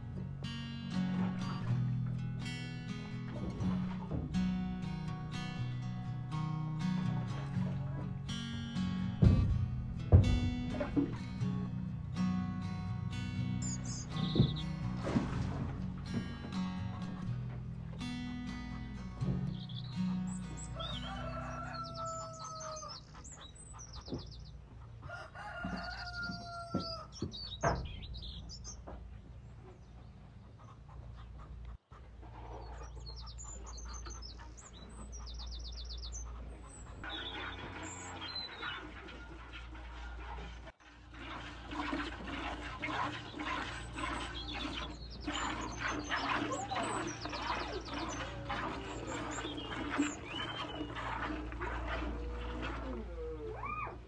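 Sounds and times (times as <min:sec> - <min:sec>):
small birds chirping: 0:13.6 - 0:15.0, 0:18.7 - 0:39.0, 0:42.9 - 0:54.0
hens clucking: 0:20.0 - 0:27.3, 0:28.8 - 0:54.0
rooster crowing: 0:20.8 - 0:22.9, 0:25.0 - 0:27.1.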